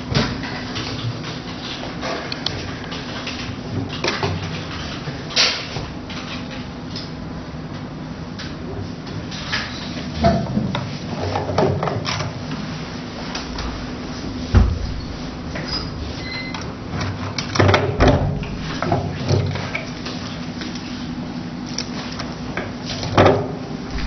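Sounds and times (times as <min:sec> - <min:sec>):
steady low hum: 0:12.4 - 0:17.0, 0:23.6 - 0:24.0.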